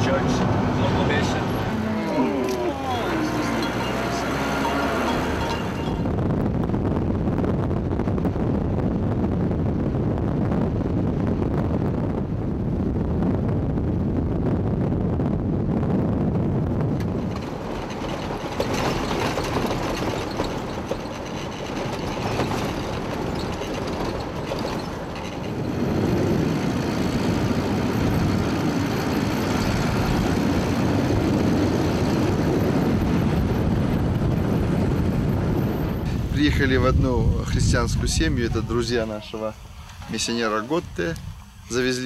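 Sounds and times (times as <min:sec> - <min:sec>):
tyres rumbling on gravel: 0:00.0 - 0:06.3, 0:16.8 - 0:42.0
car engine: 0:00.0 - 0:07.4, 0:16.7 - 0:36.8
wind rushing over microphone: 0:00.0 - 0:42.0.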